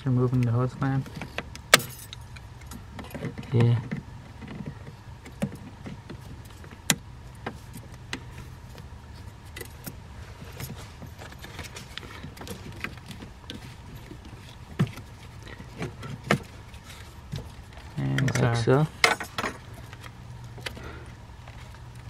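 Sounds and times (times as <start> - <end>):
steady low hum: 0.0 - 22.0
hand tools clicking and clinking: 9.5 - 22.0.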